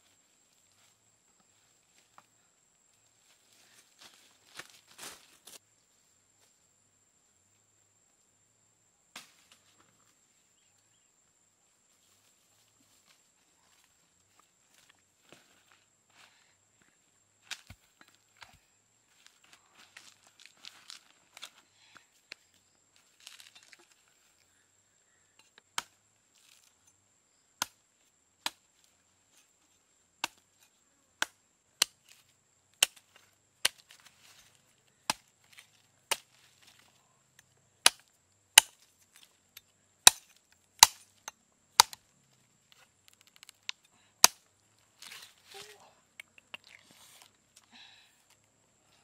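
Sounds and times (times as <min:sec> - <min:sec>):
knife chopping coconut husk: 0:35.1 - 0:36.3, 0:37.8 - 0:38.0, 0:40.0 - 0:41.0.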